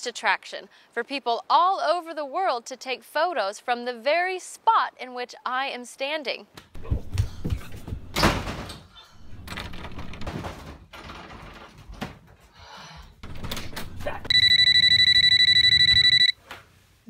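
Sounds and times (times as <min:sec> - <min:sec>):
phone ringing electronically: 0:14.3 - 0:16.4.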